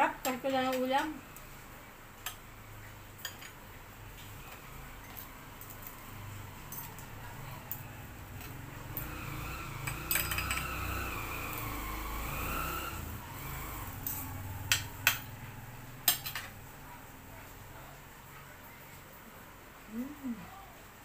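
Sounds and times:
cutlery clinking on ceramic plate: 3.2 - 3.6, 10.1 - 10.7.

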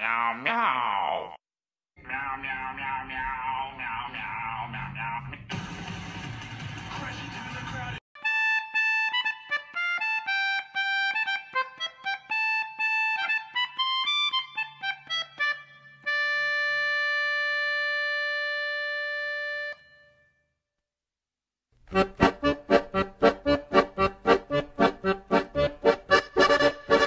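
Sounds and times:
background music melody: 8.2 - 20.6, 21.9 - 27.0.

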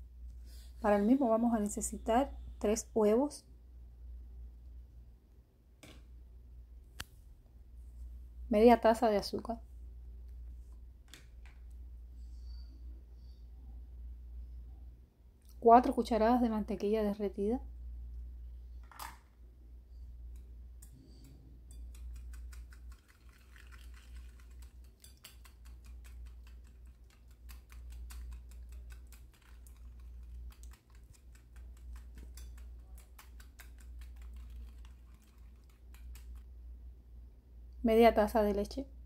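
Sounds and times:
whisk ticking against bowl: 20.3 - 36.5.

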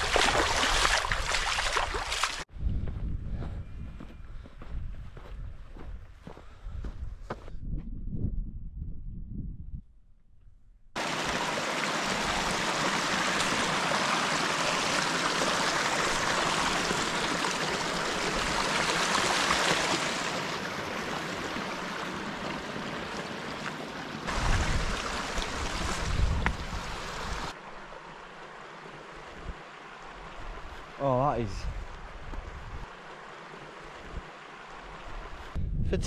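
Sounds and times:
stream splashing over rocks: 0.0 - 2.5, 11.0 - 30.3.

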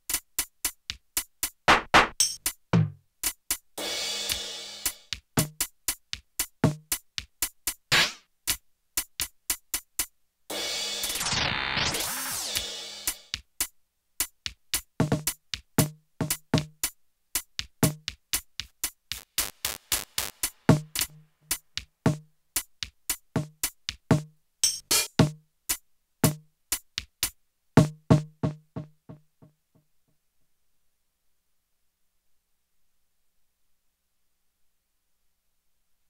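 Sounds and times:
electronic drum pad hits: 19.1 - 21.1.

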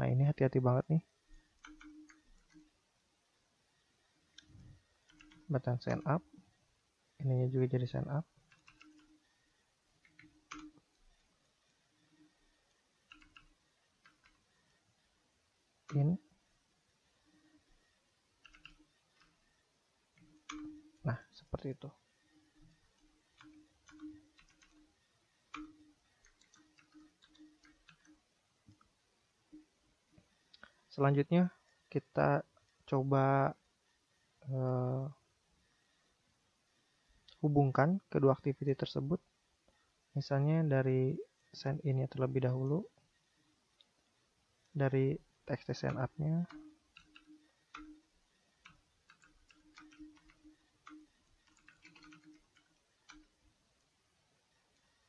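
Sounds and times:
faint keyboard typing: 1.1 - 2.8, 4.3 - 6.5, 7.3 - 14.8, 15.8 - 16.4, 17.2 - 33.6, 43.8 - 55.0.

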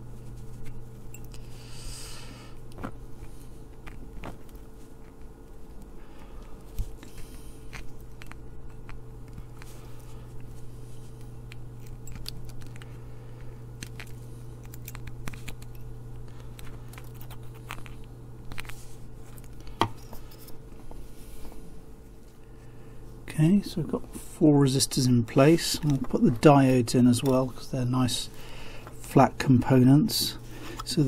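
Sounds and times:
steady low hum: 0.0 - 31.0.

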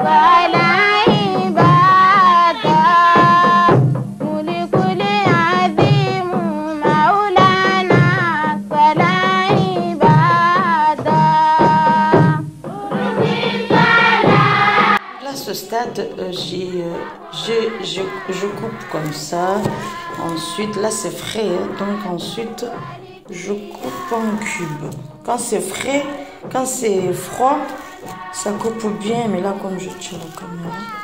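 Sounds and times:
wavering melody over drum beat: 15.6 - 31.0.

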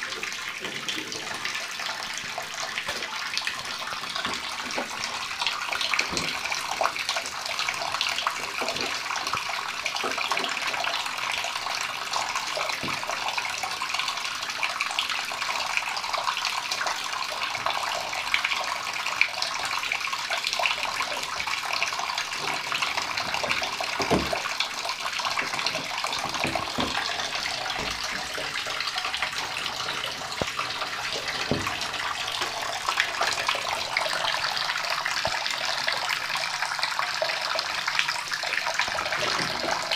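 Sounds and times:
tap water running into bathtub: 0.0 - 39.9
light knocks and splashes: 25.2 - 32.6.

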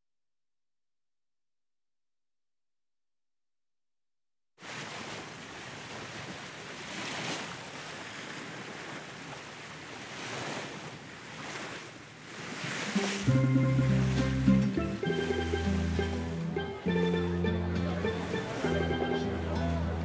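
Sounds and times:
waves rushing along ship hull: 4.6 - 20.0.

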